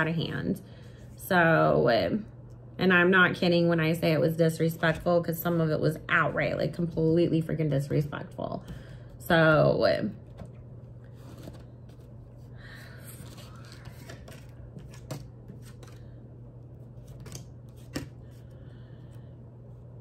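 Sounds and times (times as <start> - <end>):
cards rustling: 10.2 - 16.2, 16.8 - 18.6.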